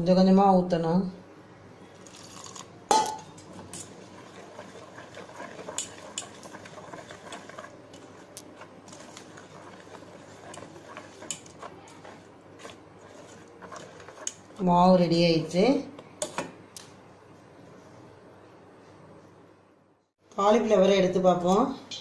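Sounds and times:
whisk clicking against a metal pan: 3.7 - 14.4
whisk knocking on pan: 3.8 - 14.6.

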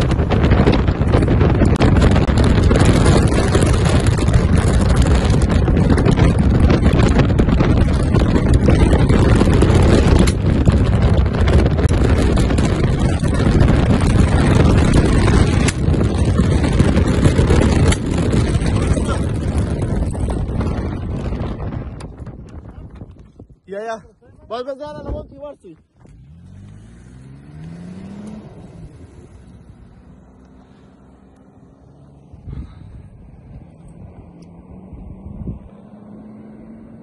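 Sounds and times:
car driving over rough ground: 0.0 - 23.5
wind rushing through car window: 0.0 - 37.0.

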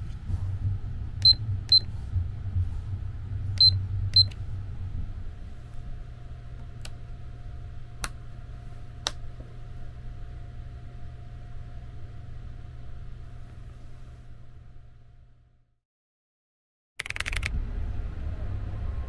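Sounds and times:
train rumble: 0.0 - 5.7, 17.5 - 19.0
sharp clicks: 17.0 - 17.6.

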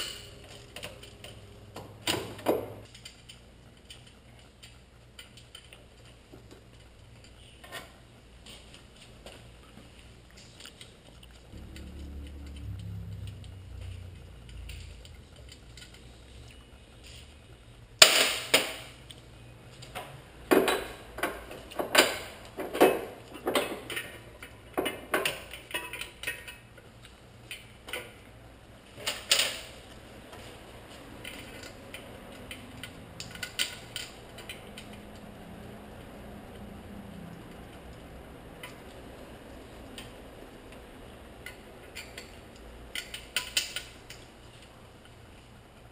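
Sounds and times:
metal clanks and clinks: 0.0 - 1.4
low rumble: 11.5 - 16.6.

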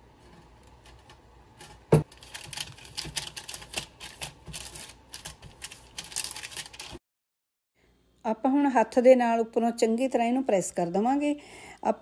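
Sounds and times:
paper crinkling in metal tin: 2.1 - 7.0.

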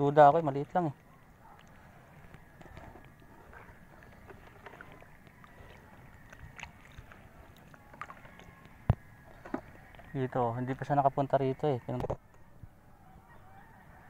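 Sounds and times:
water lapping and sloshing: 0.0 - 11.0.

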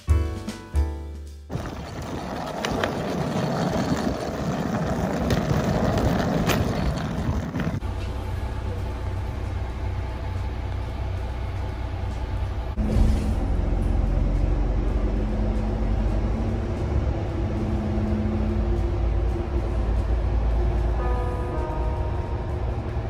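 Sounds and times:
suitcase wheels rolling on asphalt: 1.5 - 8.2
bus engine idling: 3.4 - 23.0.

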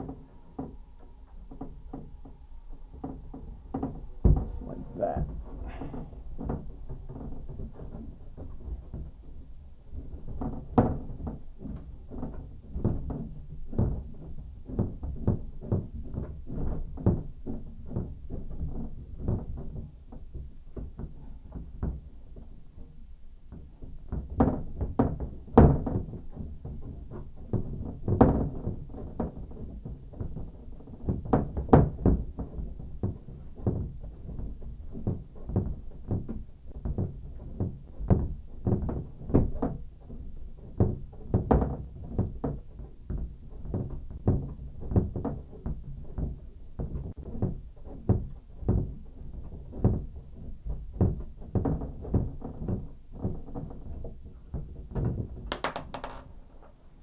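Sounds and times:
knocks on shower surround and pipes: 3.0 - 9.1, 54.9 - 56.4.

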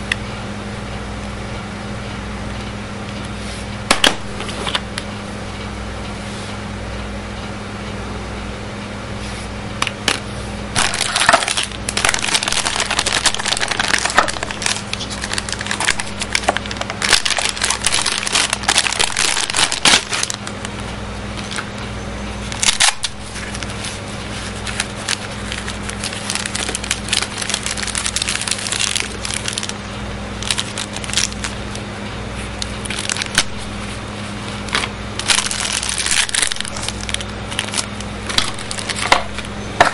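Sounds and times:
low electrical hum: 0.0 - 39.9
plastic packaging crinkling: 10.8 - 20.6, 22.4 - 31.8, 32.4 - 39.9.

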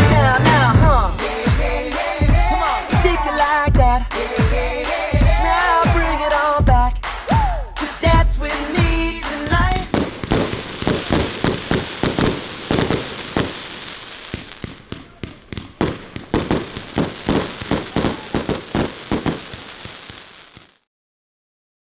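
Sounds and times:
aerial fireworks bangs: 8.1 - 20.8
steady hiss: 9.9 - 14.7.

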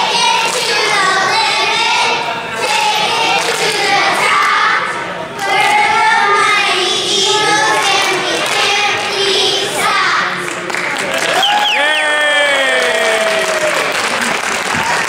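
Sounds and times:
children chanting together: 0.0 - 10.4.

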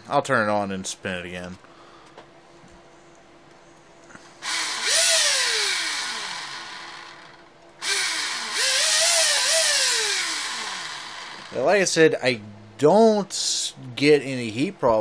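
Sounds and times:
electric motor grinding whine: 4.4 - 11.7.

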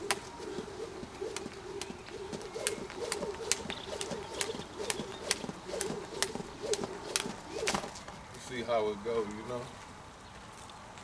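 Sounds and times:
doves cooing: 0.0 - 8.0
jump rope slapping dirt: 0.0 - 8.2.

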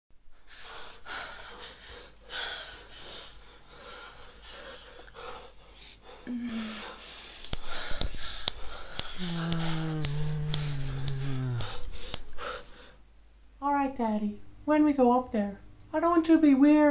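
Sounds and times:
person breathing heavily: 0.3 - 13.0
person humming briefly: 9.0 - 12.6.

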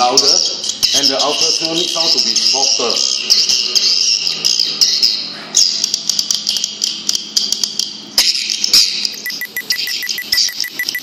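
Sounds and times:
bird chirps and clicks through speakers: 3.3 - 11.0.

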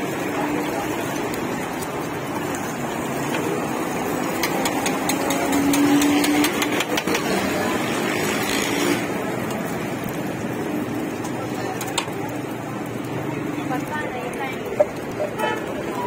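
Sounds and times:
egg sizzling on griddle: 0.0 - 16.0
metal spatula scraping griddle: 4.4 - 7.5.

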